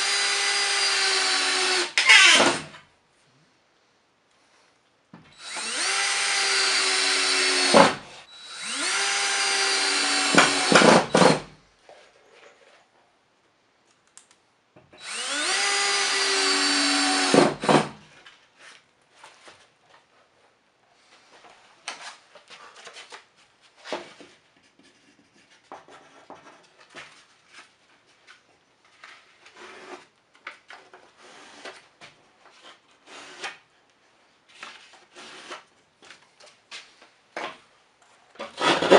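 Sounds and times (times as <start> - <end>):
cordless drill driving screws: 0.0 - 2.6, 5.4 - 11.4, 15.0 - 17.9.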